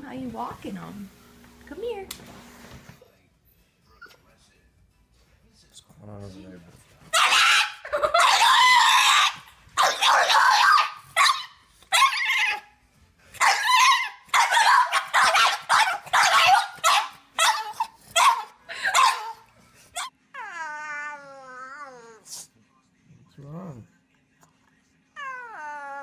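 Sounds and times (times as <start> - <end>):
puppy yowling and yelping: 7.1 - 12.7, 13.4 - 19.4.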